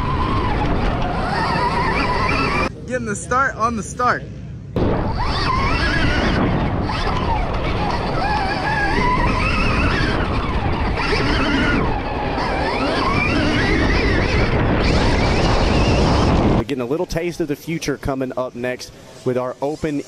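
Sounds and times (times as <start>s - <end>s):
electric dirt bike motor whining: 0.0s - 2.7s, 4.8s - 16.6s
wind noise on microphone: 0.0s - 2.9s, 4.4s - 17.2s.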